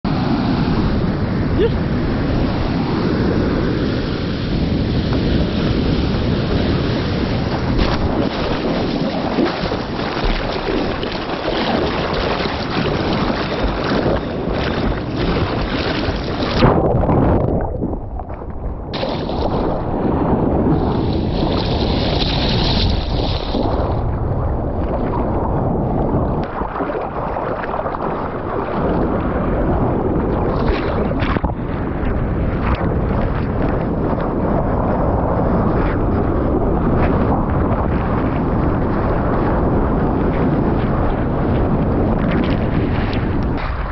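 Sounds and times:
wind buffeting microphone: 0:00.0 - 0:43.9
water sloshing and splashing: 0:07.4 - 0:20.0, 0:20.7 - 0:24.0, 0:24.6 - 0:34.4, 0:40.4 - 0:43.9.

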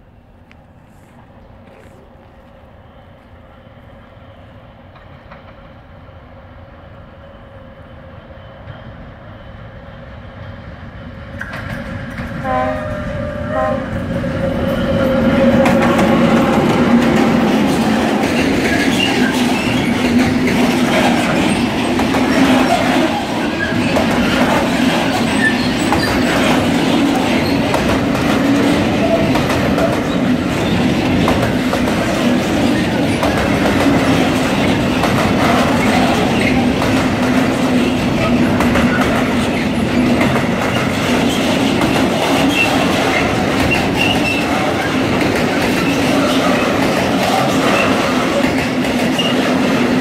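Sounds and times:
train wheels rumbling on rails: 0:00.0 - 0:50.0
wheels clattering over rail joints: 0:15.6 - 0:50.0.

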